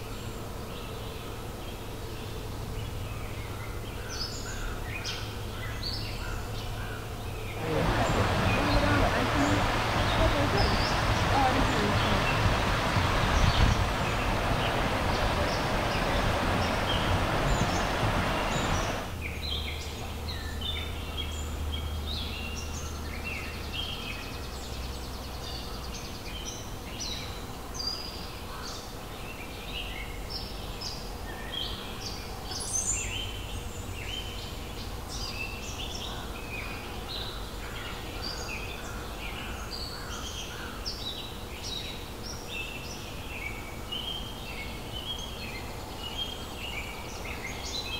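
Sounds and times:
faint low hum: 0:07.4 - 0:19.1
steady rushing noise: 0:07.6 - 0:19.2.

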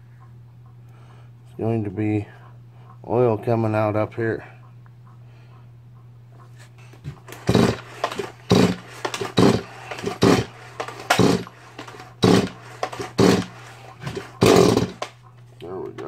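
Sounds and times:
steady low hum: 0:00.0 - 0:16.0
chainsaw engine bursts: 0:07.2 - 0:15.2.

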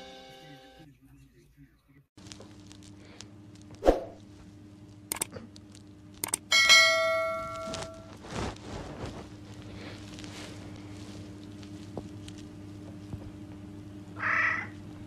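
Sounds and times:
mouse clicks: 0:05.1 - 0:05.3, 0:06.2 - 0:06.4.

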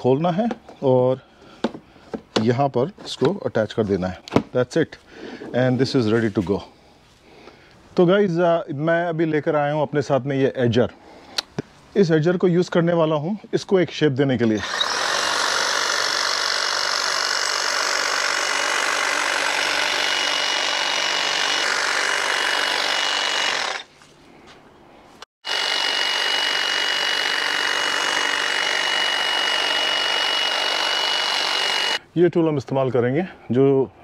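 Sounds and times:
hedge trimmer cutting hedge: 0:14.4 - 0:23.9, 0:25.4 - 0:32.0.

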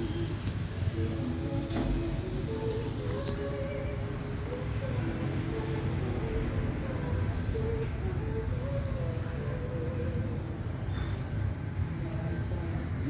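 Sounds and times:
high-pitched insect drone: 0:00.0 - 0:13.0.

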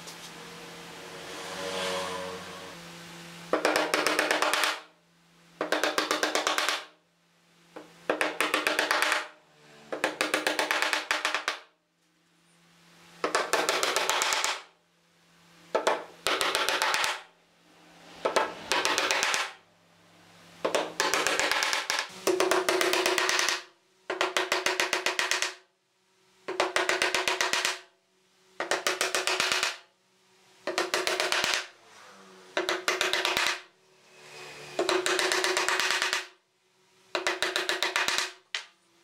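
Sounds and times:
hammer driving nails into wood: 0:03.5 - 0:04.9, 0:05.6 - 0:07.0, 0:07.8 - 0:11.7, 0:13.2 - 0:14.7, 0:15.8 - 0:17.3, 0:18.2 - 0:19.6, 0:20.6 - 0:25.6, 0:26.5 - 0:27.9, 0:28.6 - 0:29.9, 0:30.7 - 0:31.7, 0:32.6 - 0:33.7, 0:34.8 - 0:36.4, 0:37.1 - 0:38.7.

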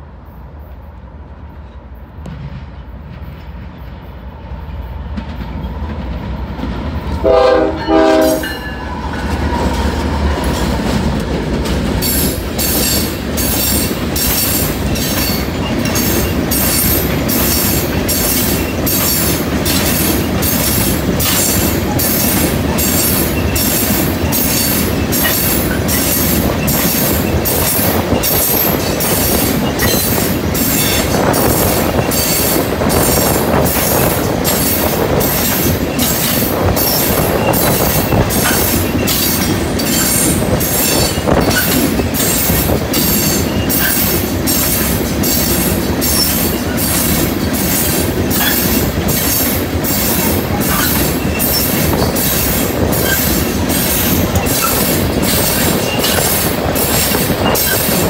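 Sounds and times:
diesel locomotive rumble: 0:00.0 - 0:58.0
train wheels clickety-clack: 0:01.5 - 0:58.0
train horn blasts: 0:07.2 - 0:08.8.

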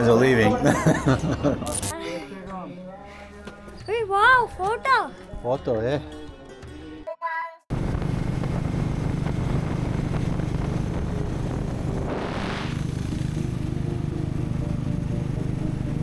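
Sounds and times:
wind rushing over microphone: 0:07.7 - 0:13.4
motorcycle engines running: 0:07.7 - 0:16.0.

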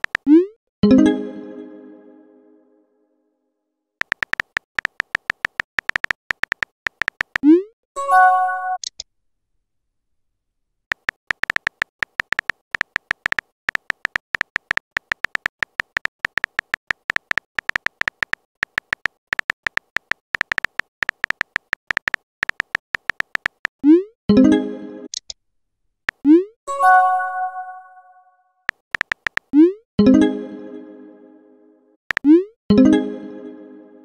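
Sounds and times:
keyboard tap clicks: 0:00.0 - 0:00.3, 0:04.0 - 0:07.5, 0:10.9 - 0:23.7, 0:28.7 - 0:29.5, 0:32.1 - 0:32.3.

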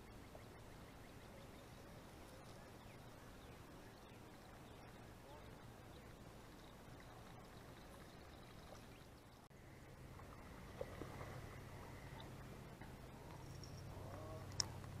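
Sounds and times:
faint low steady hum: 0:00.0 - 0:15.0
faint ticks or chirps: 0:06.0 - 0:09.5.

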